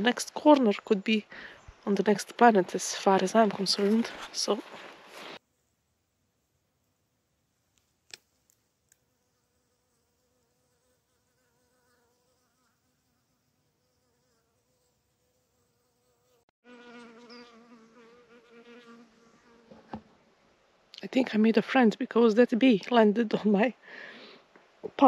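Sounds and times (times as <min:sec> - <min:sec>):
bee buzzing in flight: 0:09.1 - 0:19.9.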